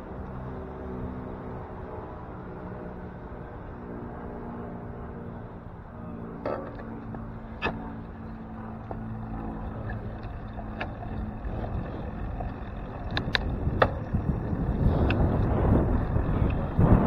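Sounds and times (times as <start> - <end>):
bicycle rolling rumble: 0.0 - 17.0
steady hum: 0.0 - 17.0
bike and mount rattling clicks: 6.4 - 16.7.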